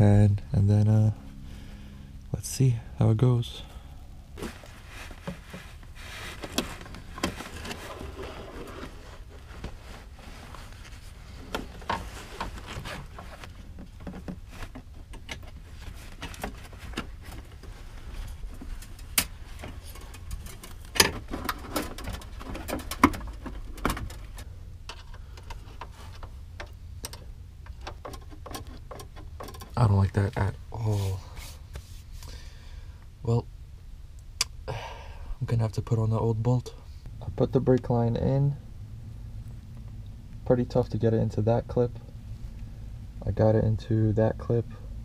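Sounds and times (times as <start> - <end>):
steady low rumble: 0.0 - 27.8, 29.7 - 45.0
small clicks and rubbing: 4.4 - 30.5.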